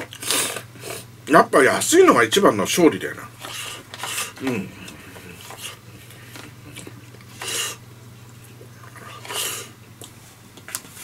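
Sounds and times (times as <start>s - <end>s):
steady low hum: 0.0s - 11.0s
person chewing: 3.4s - 7.8s, 8.4s - 10.8s.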